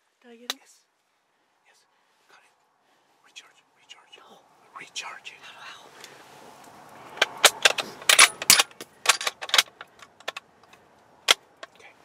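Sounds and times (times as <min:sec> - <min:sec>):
sharp clicks and small rattles: 0:07.1 - 0:11.8.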